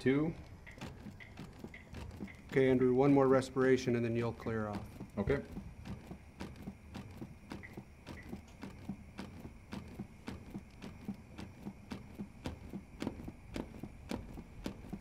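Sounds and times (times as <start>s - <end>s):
manikin chest compression clicks: 0.4s - 3.2s.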